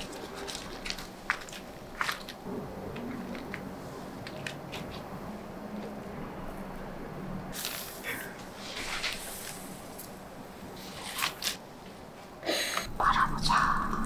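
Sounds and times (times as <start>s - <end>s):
food fillings rustling: 0.0s - 5.1s
bamboo mat scraping: 7.6s - 10.1s, 10.8s - 11.6s.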